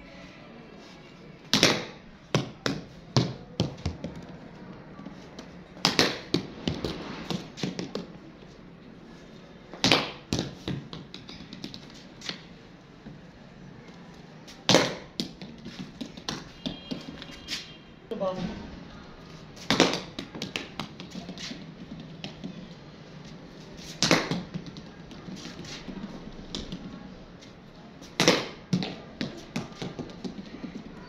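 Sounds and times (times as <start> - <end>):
ball bouncing on concrete: 1.4 - 8.2, 9.7 - 13.2, 13.9 - 17.6, 19.6 - 22.8, 23.8 - 27.2, 28.0 - 31.0.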